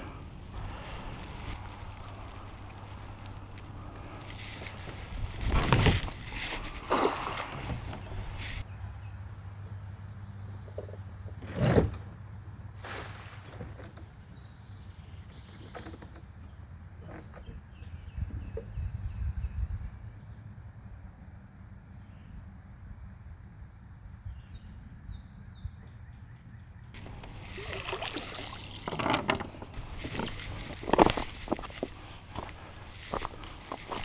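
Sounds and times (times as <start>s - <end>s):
insects chirping: 0.0s - 34.0s
knocks and rustles: 4.2s - 8.6s, 27.0s - 34.0s
wind rumble on microphone: 17.7s - 20.3s.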